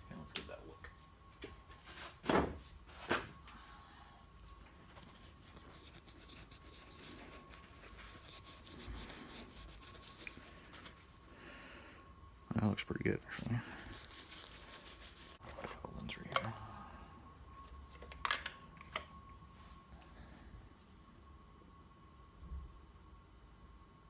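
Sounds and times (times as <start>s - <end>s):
cloth rubbing plastic: 4.5s - 11.2s, 13.3s - 15.8s.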